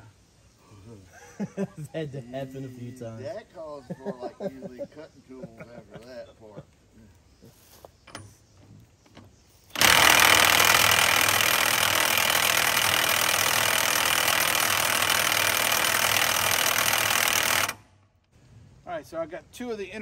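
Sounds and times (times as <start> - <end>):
impact wrench hammering: 9.7 - 17.8.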